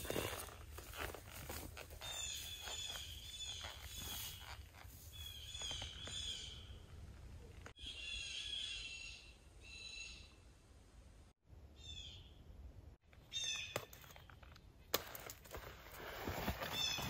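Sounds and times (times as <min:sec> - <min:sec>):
gear and straps rustling: 0:00.0 - 0:06.5, 0:14.1 - 0:17.0
songbird chirps: 0:02.0 - 0:10.5.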